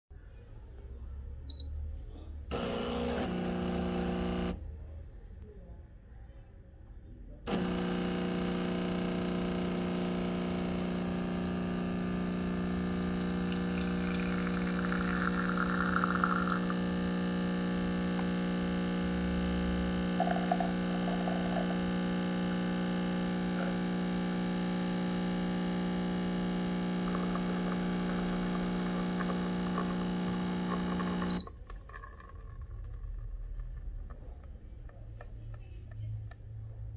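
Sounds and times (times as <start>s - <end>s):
espresso machine pump buzzing: 2.5s - 4.6s, 7.5s - 31.5s.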